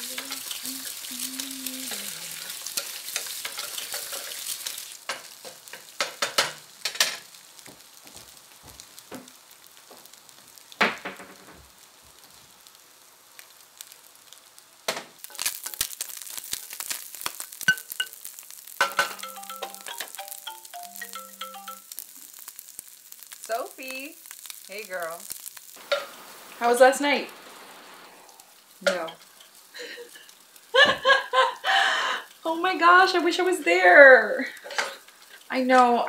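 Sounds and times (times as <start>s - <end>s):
eggs sizzling in frying pan: 0.0s - 36.0s
utensil scraping pan: 2.4s - 7.1s
phone ringtone melody: 19.1s - 21.9s.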